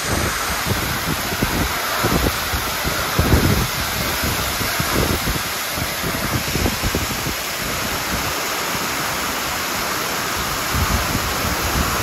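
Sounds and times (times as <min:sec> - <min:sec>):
low gusty rumbles: 0:00.0 - 0:08.9
heavy rain and hail: 0:00.0 - 0:12.0.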